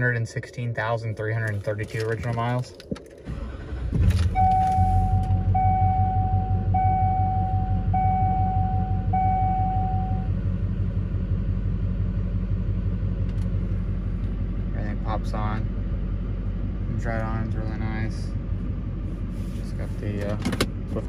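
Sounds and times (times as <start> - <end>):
diesel engine starting and idling: 2.5 - 21.0
dashboard warning chime: 4.3 - 10.3.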